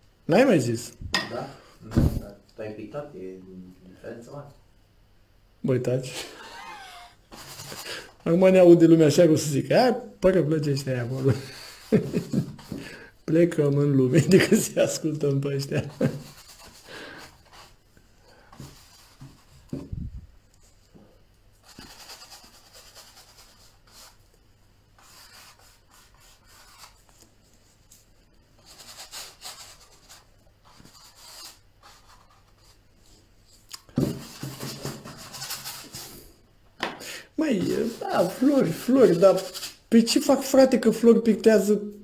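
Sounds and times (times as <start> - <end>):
brush scrubbing on canvas: 7.3 - 8.0, 11.0 - 12.8, 15.8 - 17.8, 21.6 - 24.2, 25.0 - 33.2, 34.2 - 36.3, 37.6 - 39.8.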